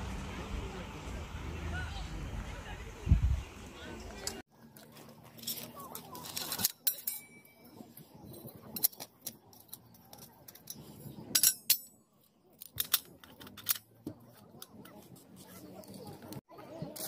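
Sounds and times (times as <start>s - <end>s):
metal parts clinking and scraping: 4.6s - 17.0s
ringing metal clatter: 5.3s - 12.0s.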